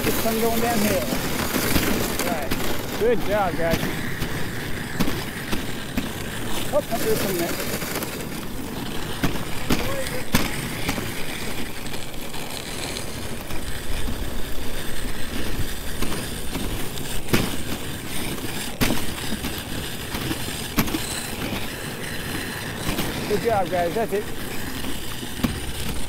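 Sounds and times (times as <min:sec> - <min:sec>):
sled knocks and rattles: 0:00.0 - 0:26.0
sled runners scraping snow: 0:00.0 - 0:26.0.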